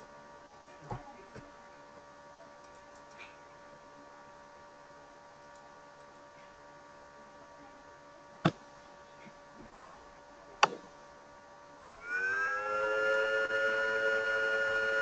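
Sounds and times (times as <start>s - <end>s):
steady electrical hum: 0.0s - 15.0s.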